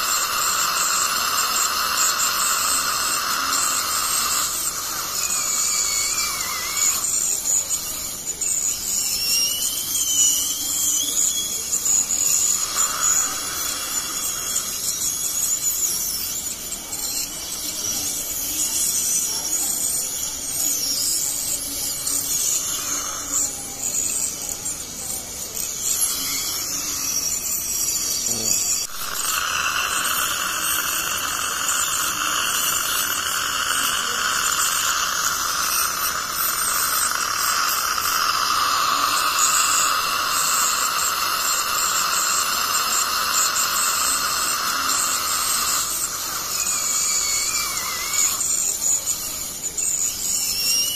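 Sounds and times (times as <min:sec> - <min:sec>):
dental scaler high-pitched whine: 0:00.0 - 0:50.9
water spray hiss: 0:29.1 - 0:48.3.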